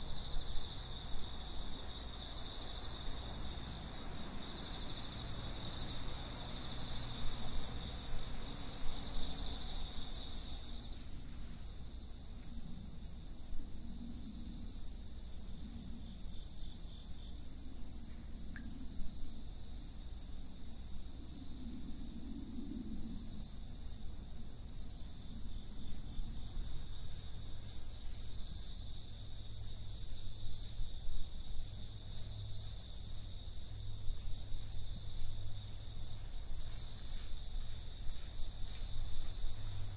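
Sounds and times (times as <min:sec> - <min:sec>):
crickets singing: 0:00.0 - 0:12.3, 0:22.6 - 0:39.9.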